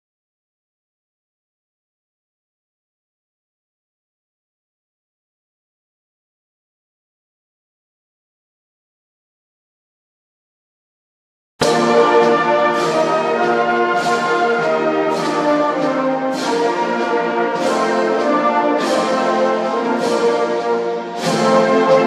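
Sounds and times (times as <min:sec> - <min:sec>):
brass band slow chords: 0:11.6 - 0:22.0.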